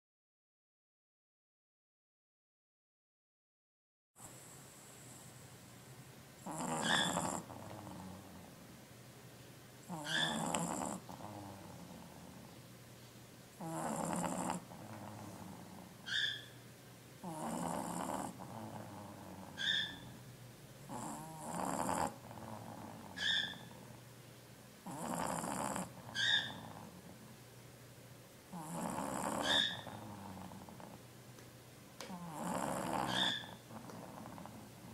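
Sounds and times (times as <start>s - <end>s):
pet snoring: 6.4s - 8.6s, 9.8s - 12.5s, 13.6s - 16.6s, 17.2s - 20.2s, 20.9s - 24.0s, 24.8s - 27.3s, 28.5s - 31.1s, 32.0s - 34.9s.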